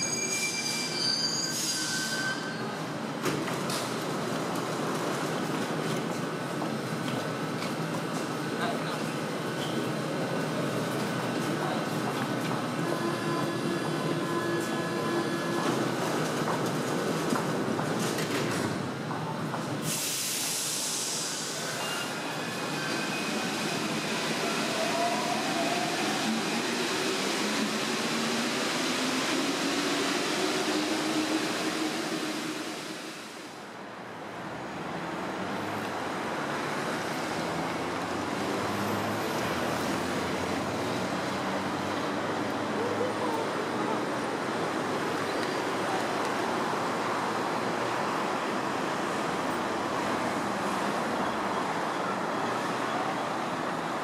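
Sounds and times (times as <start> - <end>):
train rumbling on viaduct: 0.0 - 54.0
road traffic: 2.6 - 54.0
loud hiss: 19.8 - 22.0.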